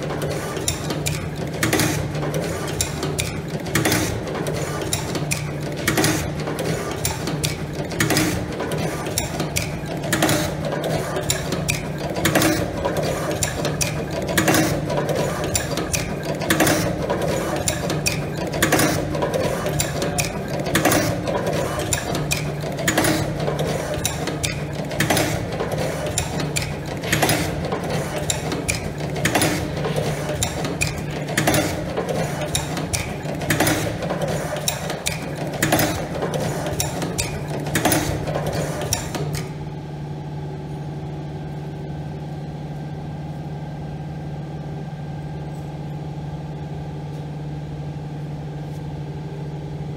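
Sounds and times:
sharp machine clack: 0:00.0 - 0:39.6
light machine clicks: 0:00.1 - 0:39.6.

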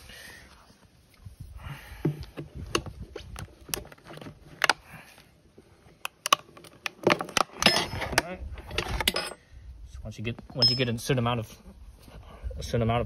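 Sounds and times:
metal tire spoons clicking on rim: 0:10.6 - 0:11.0.

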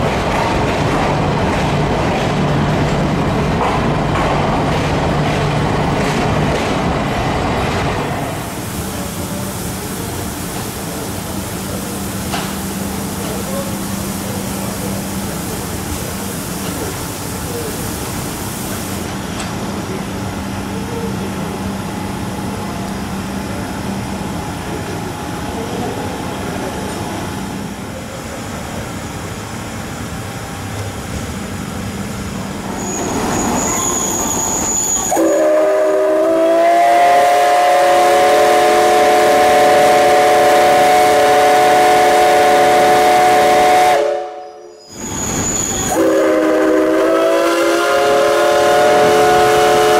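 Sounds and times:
steam locomotive hissing: 0:05.6 - 0:49.9
steam whistle blast: 0:32.8 - 0:49.9.

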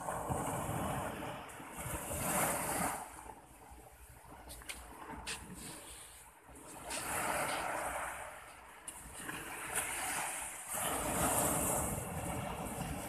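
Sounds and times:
waves breaking on beach: 0:00.0 - 0:13.0.

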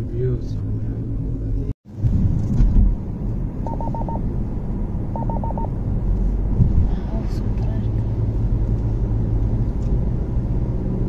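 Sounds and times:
car cabin road rumble: 0:00.0 - 0:11.0
short electronic beeps: 0:03.6 - 0:04.2, 0:05.1 - 0:05.7.

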